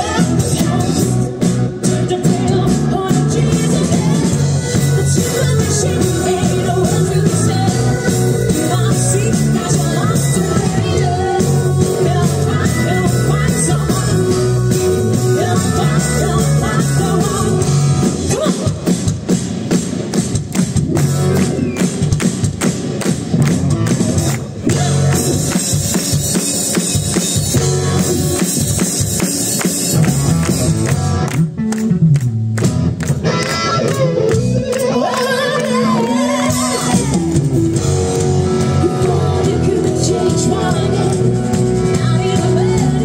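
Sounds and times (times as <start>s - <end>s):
woman singing: 0.0s - 18.8s, 33.3s - 37.3s, 38.8s - 43.0s
rock band playing: 0.0s - 43.0s.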